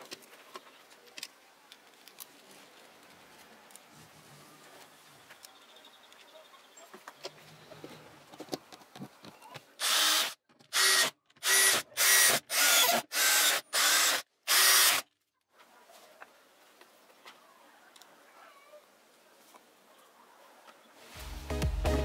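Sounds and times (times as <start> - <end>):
power screwdriver driving screws: 9.8 - 15.0.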